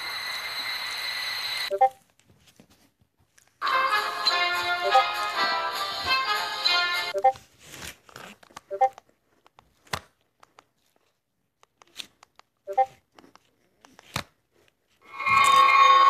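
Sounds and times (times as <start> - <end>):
chat message blips: 1.7 - 2.0, 7.2 - 7.4, 8.7 - 9.0, 12.7 - 13.0
loud music: 3.6 - 7.1.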